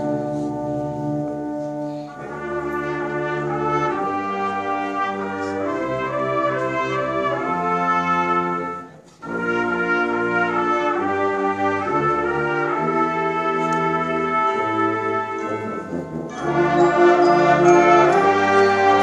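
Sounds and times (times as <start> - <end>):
wind band playing chords: 0.0 - 19.0.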